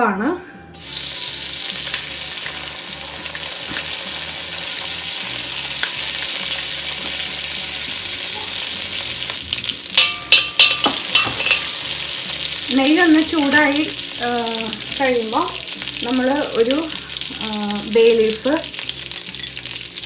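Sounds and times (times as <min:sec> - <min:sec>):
ghee sizzling in wok: 0:00.8 - 0:20.0
metal spatula scraping pan: 0:10.0 - 0:12.4.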